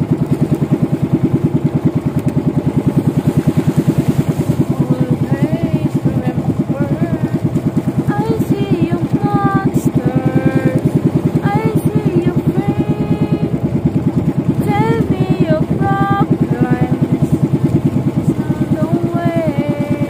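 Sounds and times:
boat engine running: 0.0 - 20.0
song with singing voice: 4.5 - 7.5, 8.1 - 13.5.

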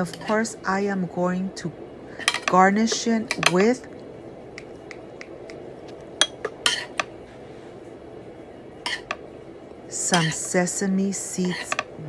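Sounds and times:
spoon clinking on pan and bowl: 10.1 - 10.4.

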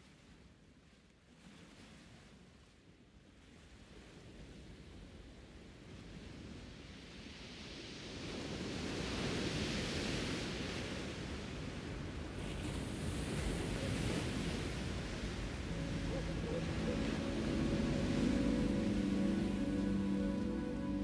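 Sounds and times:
wind: 0.0 - 21.0
waves on shingle beach: 7.4 - 21.0
soft background music: 15.6 - 21.0.

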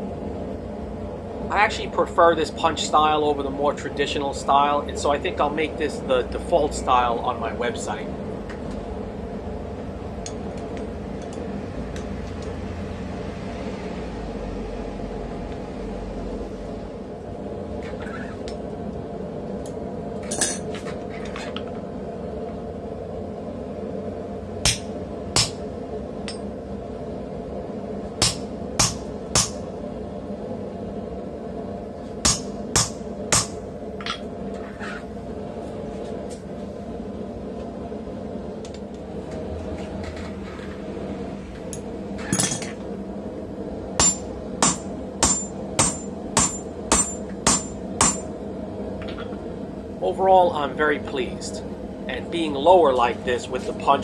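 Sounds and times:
steady background hum: 0.0 - 54.0
hammer striking metal punch: 24.6 - 25.6, 28.2 - 29.6, 32.2 - 34.2, 44.0 - 48.3.

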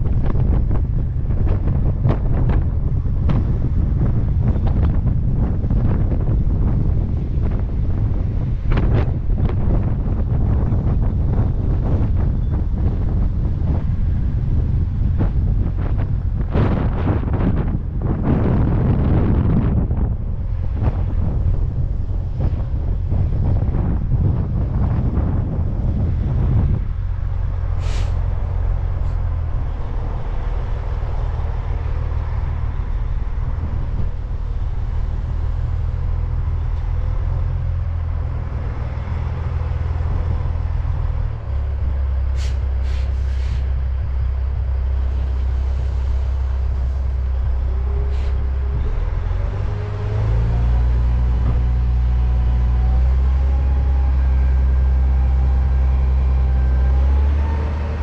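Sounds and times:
truck engine running: 0.0 - 58.0
short sharp hisses: 27.8 - 28.2, 42.4 - 43.7.

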